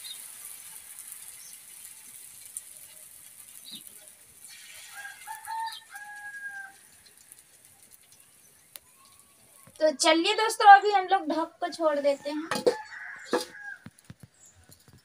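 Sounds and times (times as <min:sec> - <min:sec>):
faint steady hiss: 0:00.0 - 0:15.0
rooster crowing: 0:04.8 - 0:06.9, 0:12.1 - 0:13.9.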